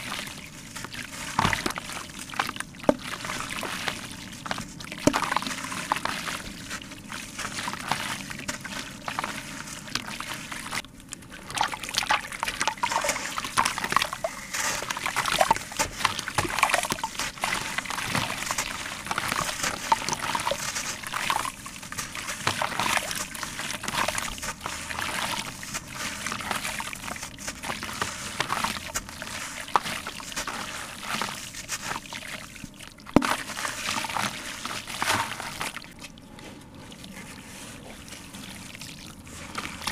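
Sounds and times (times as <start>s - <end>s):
water sloshing: 0.0s - 39.9s
grit pouring into water: 11.4s - 36.0s.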